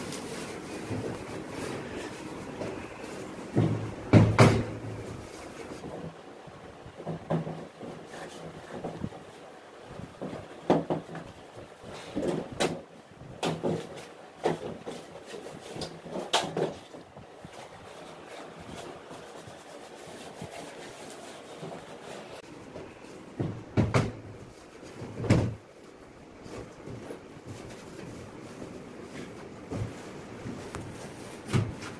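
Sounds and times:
plastic parts knocking and clattering: 0:02.6 - 0:06.2, 0:07.0 - 0:09.3, 0:10.0 - 0:17.6.

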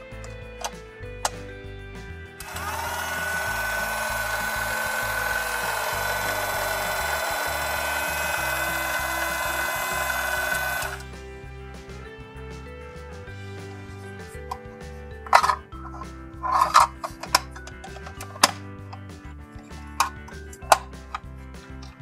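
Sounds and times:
buzzing motor hum with high tone: 0:02.0 - 0:11.6.

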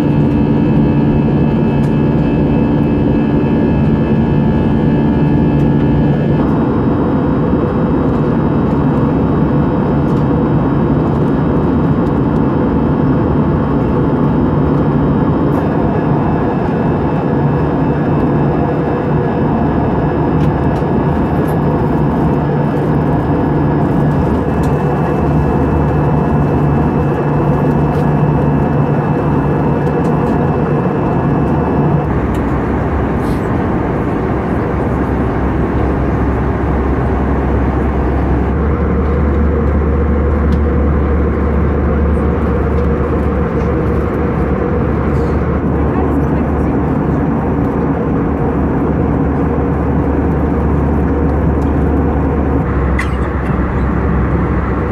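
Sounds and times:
low engine drone: 0:00.0 - 0:54.9
cabin airflow rush: 0:13.6 - 0:54.9.

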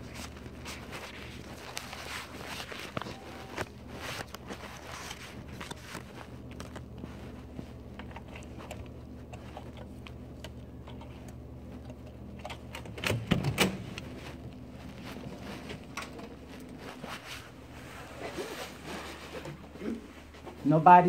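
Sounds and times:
steady low hum: 0:00.0 - 0:21.0
phone clicks and rustles: 0:00.1 - 0:09.0.

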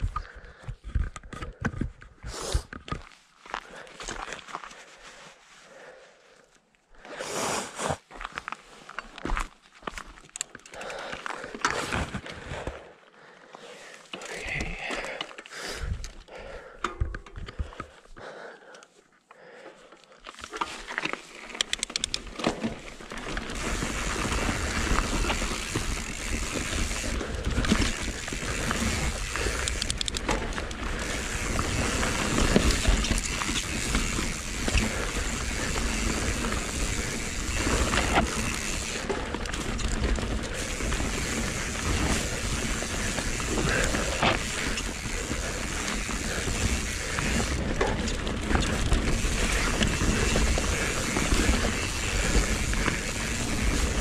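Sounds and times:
bike tyres rolling on dirt: 0:07.0 - 0:13.0, 0:20.2 - 0:54.0
bike rattling: 0:08.9 - 0:12.9, 0:14.0 - 0:18.0, 0:20.2 - 0:54.0
clicks and rustles: 0:20.3 - 0:23.6, 0:24.6 - 0:31.3.

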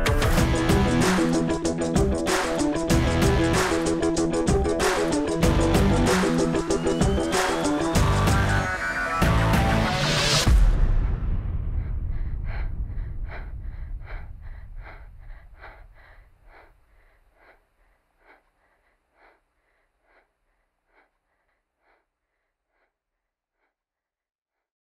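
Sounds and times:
fast rhythmic panting: 0:00.2 - 0:09.6, 0:11.8 - 0:23.0
low rumble: 0:10.4 - 0:17.6.

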